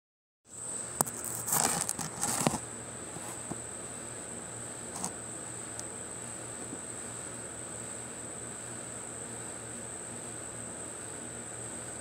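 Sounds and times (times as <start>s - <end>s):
crackling rustling clicks: 1.0s - 2.6s.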